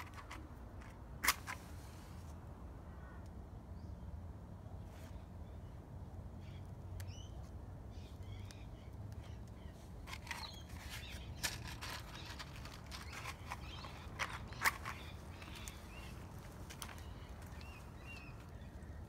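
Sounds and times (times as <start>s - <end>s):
birds chirping: 6.4s - 19.0s.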